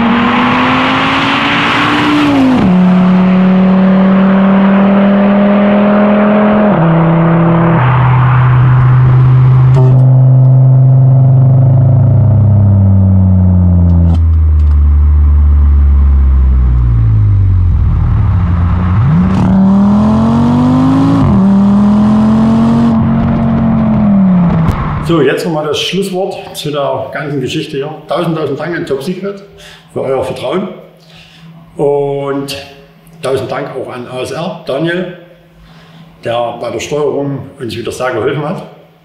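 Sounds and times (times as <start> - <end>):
car engine revving with upshifts: 0.0 - 25.1.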